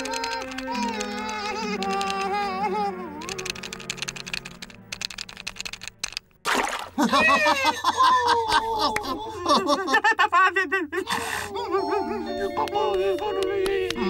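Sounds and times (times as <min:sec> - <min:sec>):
quick clicks: 0:00.0 - 0:02.5, 0:03.2 - 0:06.4
cartoon characters babbling: 0:00.0 - 0:03.7.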